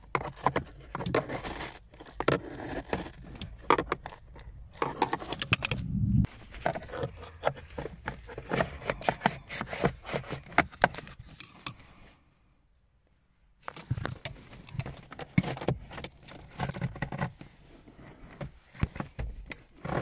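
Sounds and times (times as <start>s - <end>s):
screwdriver scraping plastic: 0.0s - 5.9s, 6.5s - 11.8s.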